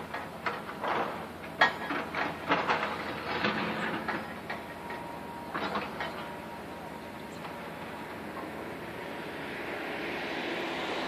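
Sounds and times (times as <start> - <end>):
metal clanks and knocks: 0.0 - 6.4.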